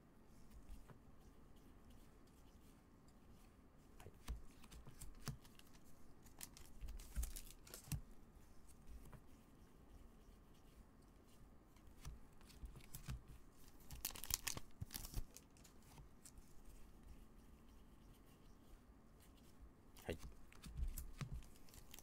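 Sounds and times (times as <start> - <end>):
trading cards rustling and clicking: 4.2 - 8.1, 11.8 - 16.4, 20.0 - 22.0.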